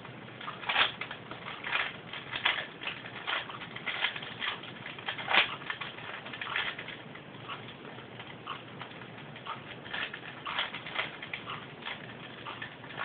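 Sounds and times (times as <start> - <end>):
puzzle cube clicking and scraping: 0.4 - 7.0, 9.4 - 13.0.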